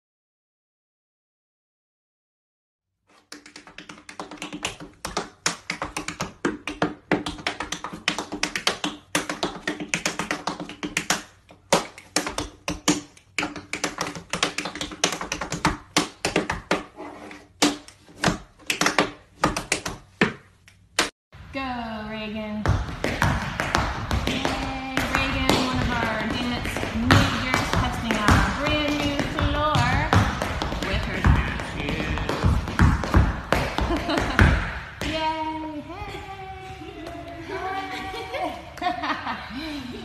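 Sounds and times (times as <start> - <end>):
tap shoes on wooden floor: 3.3 - 16.9, 22.6 - 35.3.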